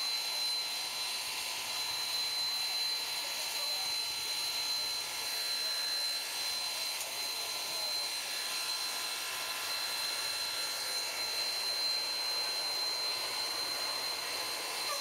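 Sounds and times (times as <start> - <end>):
thin high whistle: 4.8 - 15.0.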